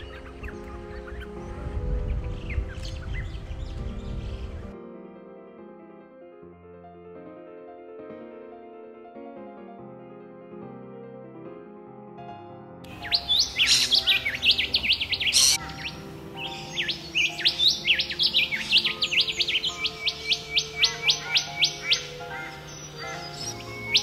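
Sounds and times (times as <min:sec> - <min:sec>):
bird whistling song: 0:00.0 - 0:04.7, 0:12.9 - 0:24.0
soft piano music: 0:00.0 - 0:24.0.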